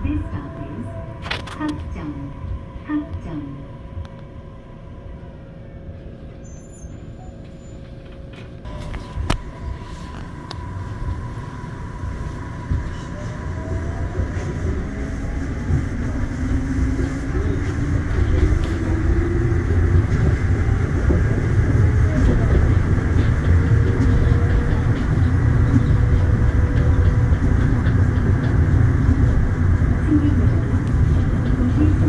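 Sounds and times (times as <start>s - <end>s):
train rumble: 0.0s - 32.0s.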